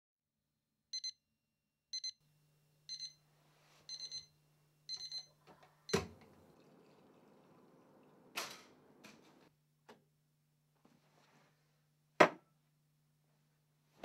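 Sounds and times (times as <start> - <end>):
digital alarm clock beeping: 1.0 - 1.2, 2.0 - 2.2, 2.9 - 3.2, 3.9 - 4.3, 4.9 - 5.3.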